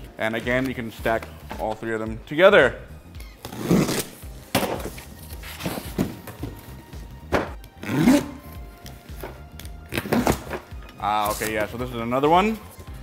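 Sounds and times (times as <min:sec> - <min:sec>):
cardboard box thuds and scrapes: 0:04.6 - 0:06.6.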